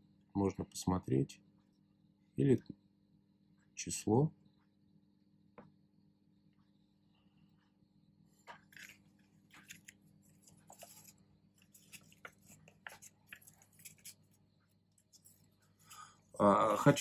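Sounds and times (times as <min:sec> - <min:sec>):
low steady hum: 0:00.0 - 0:17.0
paper leaflet rustling: 0:08.5 - 0:14.4.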